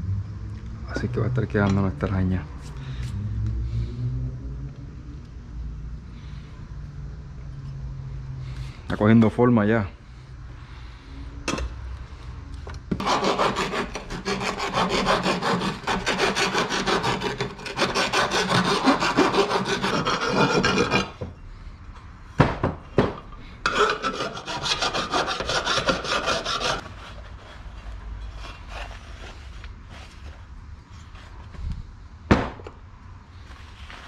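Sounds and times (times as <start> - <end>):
file rasping on metal tube: 13.0 - 21.2, 23.6 - 27.5.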